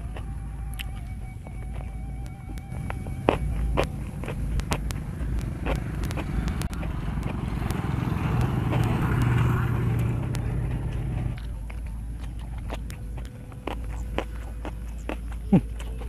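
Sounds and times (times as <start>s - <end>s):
crunchy chewing: 0.0s - 16.0s
vehicle engine running: 0.0s - 16.0s.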